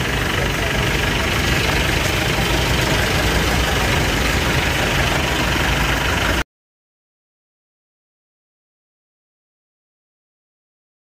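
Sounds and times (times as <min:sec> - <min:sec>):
truck engines idling: 0:00.0 - 0:06.4.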